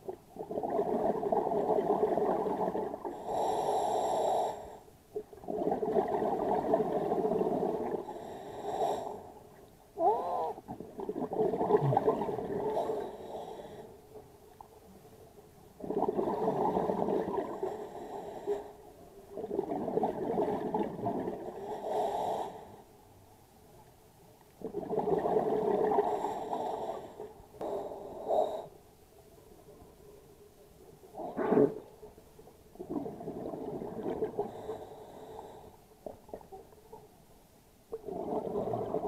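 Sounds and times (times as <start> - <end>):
underwater breath bubbling: 0.4 - 9.4, 10.0 - 14.0, 15.8 - 22.9, 24.6 - 28.8, 32.8 - 35.8, 38.0 - 39.0.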